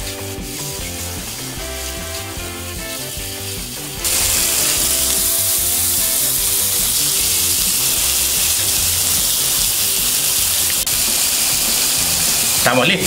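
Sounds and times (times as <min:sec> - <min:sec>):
background music: 0:00.0 - 0:13.0
steaks sizzling on a grill: 0:00.0 - 0:13.0.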